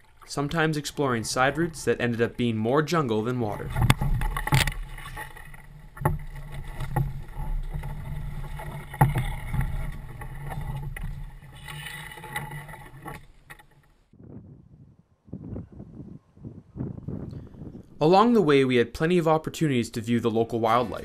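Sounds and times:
paddle strokes: 0.0s - 14.1s
water rumbling on canoe hull: 0.0s - 14.1s.

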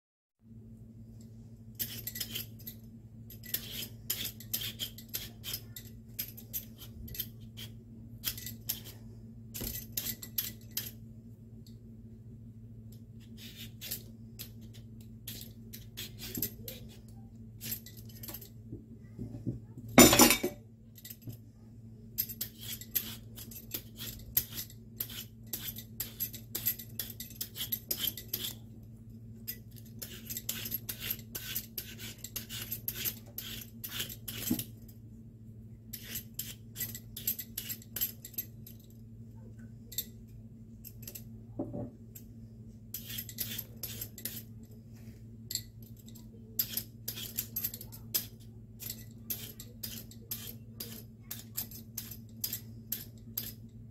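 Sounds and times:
low steady hum: 0.4s - 53.9s
peeler scraping watermelon rind: 3.4s - 9.0s, 13.2s - 17.8s, 22.4s - 28.6s, 29.9s - 34.7s, 35.9s - 37.9s, 43.0s - 44.5s, 46.6s - 53.2s.

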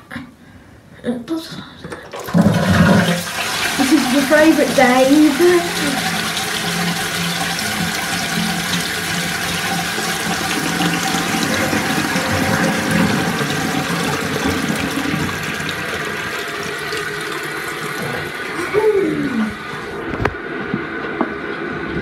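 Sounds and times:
toilet cistern refilling: 1.9s - 20.0s.

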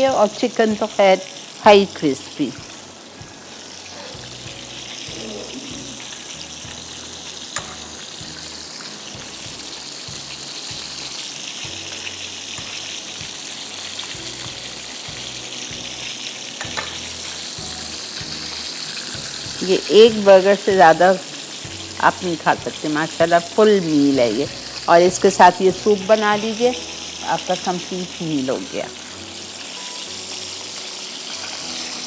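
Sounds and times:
oil sizzling in a frying pan: 0.0s - 32.0s.

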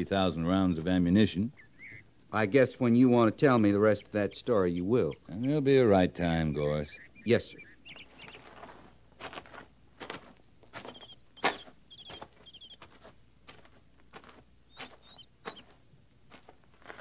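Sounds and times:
small bird chirping: 1.4s - 2.1s, 3.6s - 8.9s, 10.8s - 13.1s, 14.6s - 15.8s
footsteps walking: 8.0s - 17.0s.

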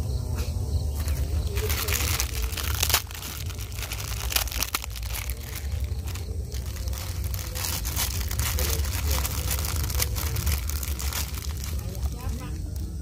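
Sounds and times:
plastic packet crinkling: 1.0s - 13.0s.

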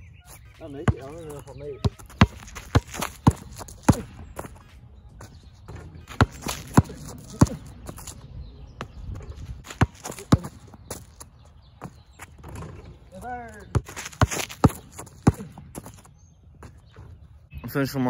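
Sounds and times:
basketball bouncing on hard court: 0.8s - 8.2s, 8.8s - 11.2s, 13.6s - 17.1s.

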